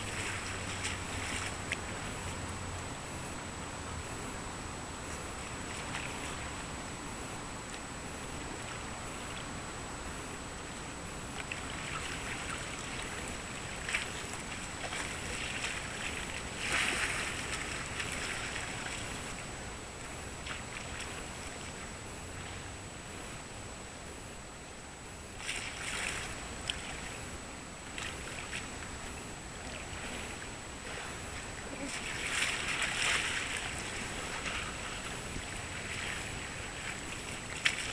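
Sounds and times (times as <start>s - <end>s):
high-pitched whine: 0.0s - 37.9s
wind and water hiss: 0.0s - 37.9s
small splashes: 11.4s - 19.2s, 31.7s - 37.9s
water lapping: 11.4s - 19.5s, 27.9s - 37.9s.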